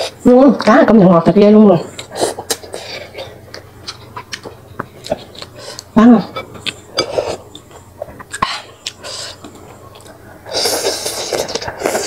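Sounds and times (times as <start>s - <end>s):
loud slurp: 10.4s - 12.0s.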